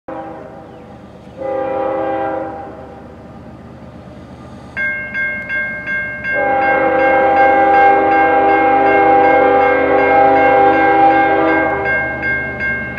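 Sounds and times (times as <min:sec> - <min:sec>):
locomotive air horn blowing: 0:00.1 - 0:00.7, 0:01.4 - 0:03.0, 0:06.4 - 0:11.9
bell ringing: 0:04.8 - 0:08.3, 0:11.5 - 0:12.9.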